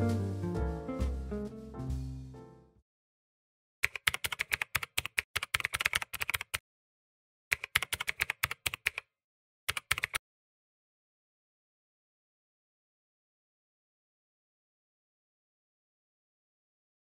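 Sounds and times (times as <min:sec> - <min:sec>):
keyboard typing clicks: 0:03.8 - 0:06.6, 0:07.5 - 0:09.1, 0:09.7 - 0:10.2.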